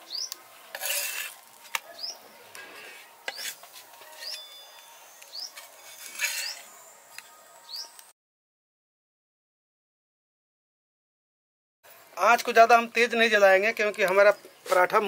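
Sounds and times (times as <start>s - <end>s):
flatbread rubbing on hot griddle: 0.7s - 1.7s, 2.6s - 4.4s, 5.6s - 6.7s.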